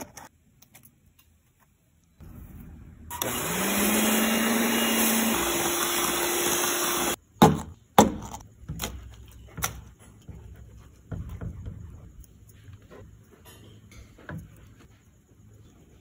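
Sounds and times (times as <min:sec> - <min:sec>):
blender motor running: 0:03.1 - 0:07.2.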